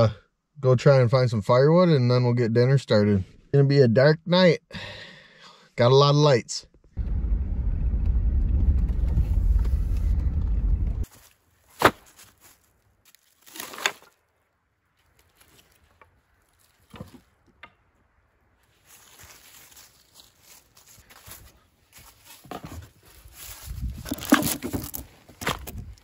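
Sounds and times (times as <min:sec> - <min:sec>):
vehicle rumble inside cabin: 0:07.0 - 0:11.1.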